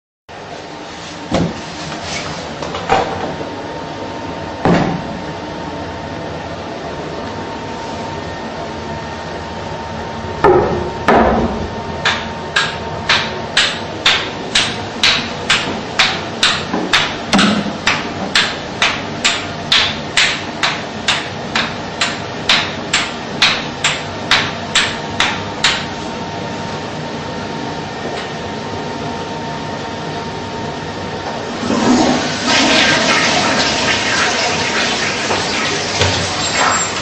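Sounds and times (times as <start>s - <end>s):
sharp evenly spaced knocks: 12.0s - 25.9s.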